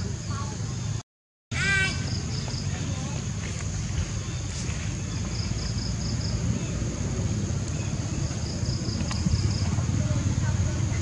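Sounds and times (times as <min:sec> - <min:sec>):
insects droning: 0:00.0 - 0:11.0
pulsing insect chirp: 0:01.6 - 0:11.0
wind on microphone: 0:03.2 - 0:11.0.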